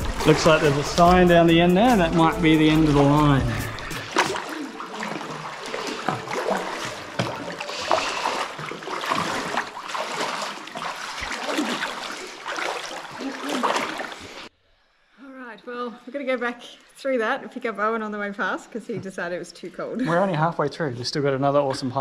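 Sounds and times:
feet splashing through shallow water: 0.0s - 14.5s.

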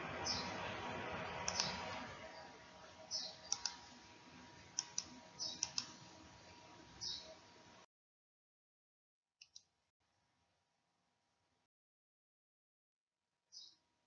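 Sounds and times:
low steady hiss: 0.0s - 7.9s
computer mouse clicking: 1.4s - 1.8s, 3.2s - 4.0s, 4.7s - 6.0s, 9.4s - 9.7s.

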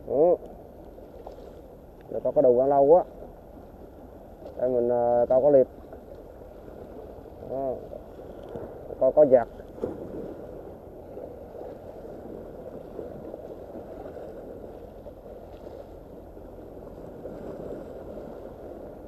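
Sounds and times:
waves splashing on rocks: 4.6s - 19.0s.

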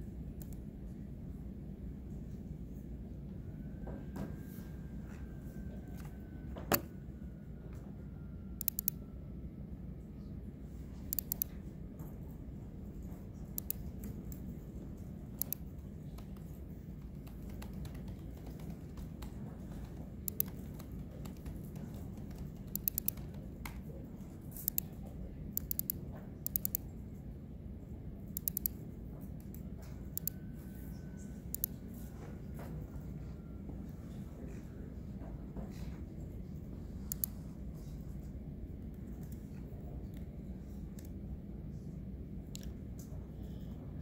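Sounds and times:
low room hum: 0.0s - 44.0s
computer keyboard typing: 8.6s - 9.0s, 11.1s - 11.6s, 13.5s - 26.9s, 28.3s - 28.8s, 29.4s - 30.4s, 31.4s - 31.8s, 37.1s - 37.4s.

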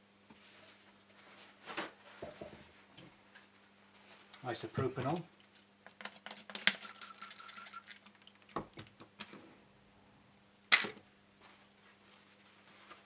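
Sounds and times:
squeeze bottle squirting hiss: 6.4s - 8.2s.

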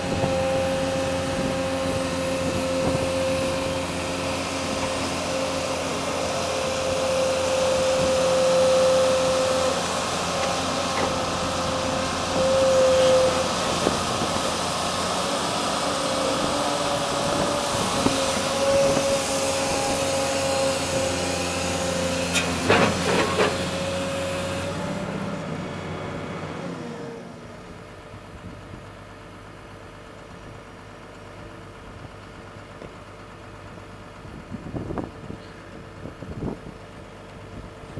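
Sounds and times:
excavator engine and hydraulics whine: 0.0s - 37.9s.

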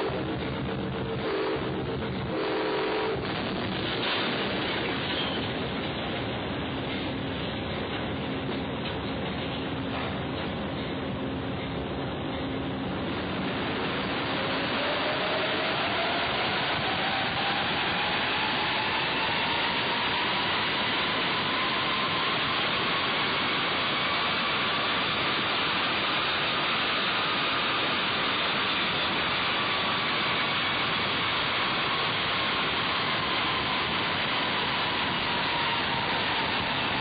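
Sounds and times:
train cab rushing noise: 0.0s - 37.0s
faint whine rising and falling: 11.3s - 37.0s.

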